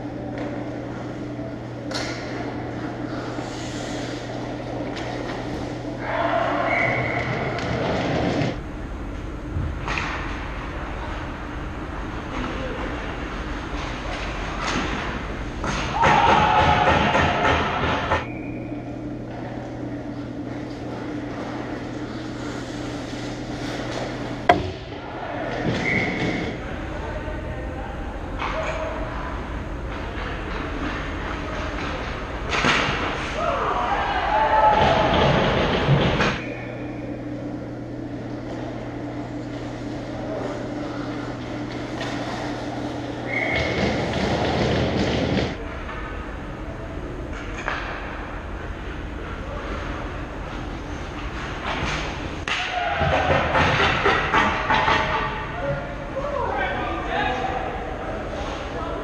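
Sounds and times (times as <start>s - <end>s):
faint hockey play noise: 0.0s - 8.6s, 9.5s - 59.0s
low arena hum: 0.0s - 59.0s
scraping rush of skates: 21.3s - 24.2s
skates and sticks on ice: 41.7s - 45.5s.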